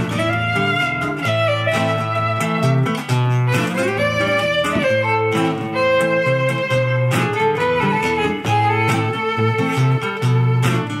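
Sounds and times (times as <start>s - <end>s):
rhythmic acoustic guitar: 0.0s - 11.0s
violin melody: 0.0s - 11.0s.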